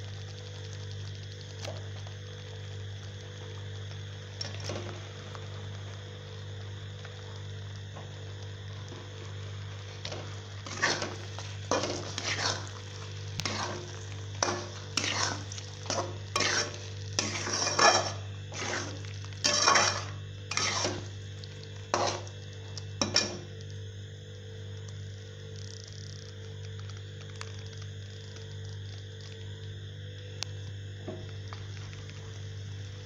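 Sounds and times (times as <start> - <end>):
steady low hum: 0.0 - 33.0
metal spoon scraping steel pan: 13.5 - 21.1, 22.0 - 22.3.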